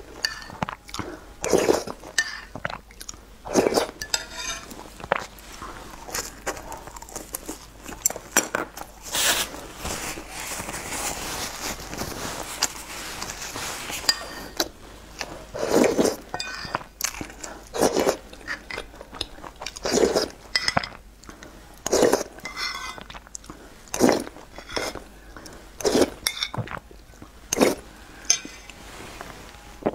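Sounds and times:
person eating from a spoon: 0.0 - 9.6, 12.4 - 28.8
metal spoon clinking on bowl: 0.2 - 0.6, 4.0 - 4.7, 16.3 - 16.8, 28.3 - 28.7
chewing: 0.5 - 9.0, 14.2 - 27.8.

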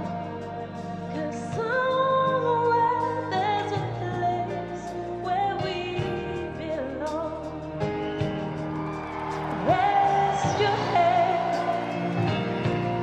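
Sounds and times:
woman singing: 1.1 - 8.0, 9.5 - 13.0
band playing: 6.0 - 13.0.

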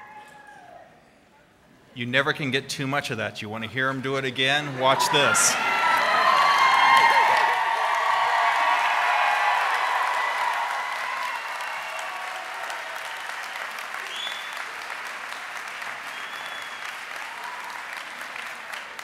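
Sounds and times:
crowd applauding and cheering: 0.0 - 0.8, 4.2 - 19.0
short high whistles: 14.1 - 14.6, 16.1 - 16.9.

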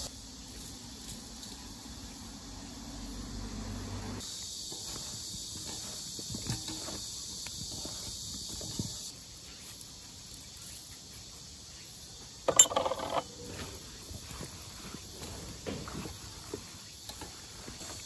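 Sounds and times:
insects chirring: 0.0 - 18.0
hands tossing cabbage in bowl: 4.4 - 11.3, 13.4 - 18.0.

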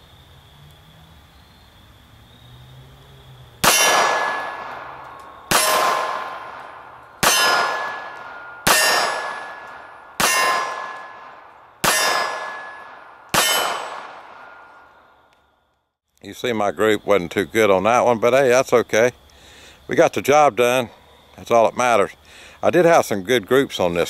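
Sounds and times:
pistol shots: 3.6 - 15.0
steel target ringing: 3.6 - 15.1.

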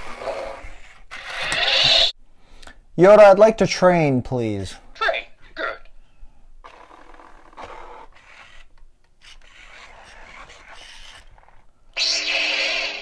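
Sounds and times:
toy gear motors grinding: 0.0 - 2.2, 6.7 - 13.0.

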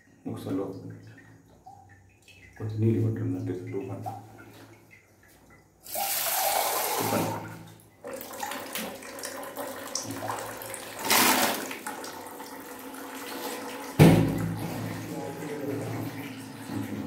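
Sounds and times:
tap water running into pot: 5.8 - 17.0
water splash: 10.0 - 12.0, 13.4 - 17.0.

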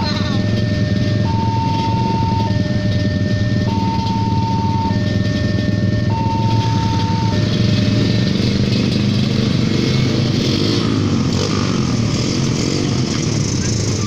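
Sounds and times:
level-crossing warning tone: 0.0 - 12.0
motorcycle engines idling and pulling away: 0.0 - 14.0.

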